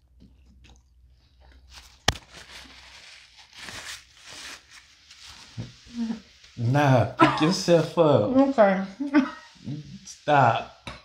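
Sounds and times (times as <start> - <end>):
paper wrapper crackling: 1.7 - 5.5.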